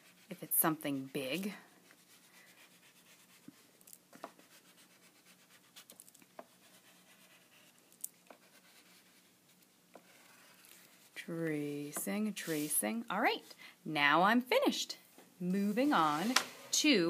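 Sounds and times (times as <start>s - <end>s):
crayon scratching on paper: 0.0s - 3.6s, 4.3s - 11.2s.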